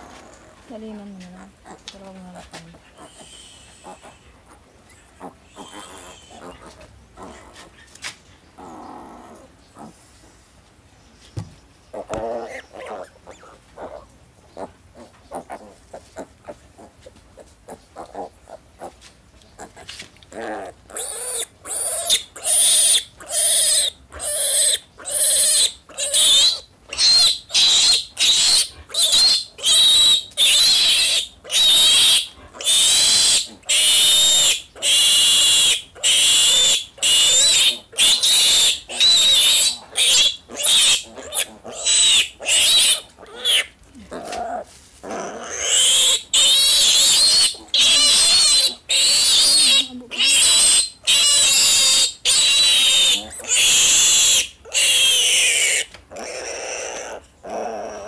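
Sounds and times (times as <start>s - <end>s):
piglet squealing: 4.9s - 7.4s, 20.5s - 43.7s, 45.1s - 58.0s.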